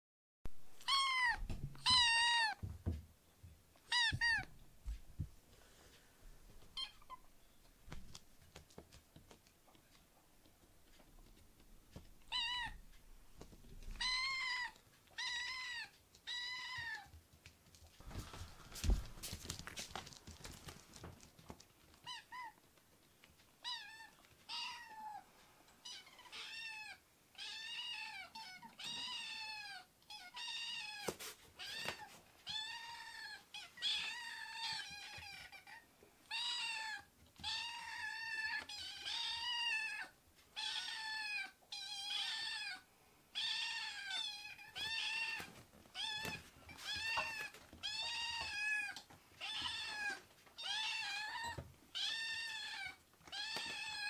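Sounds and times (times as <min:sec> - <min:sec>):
kittens meowing: 0:00.8 - 0:02.6, 0:03.8 - 0:04.5, 0:13.9 - 0:17.1.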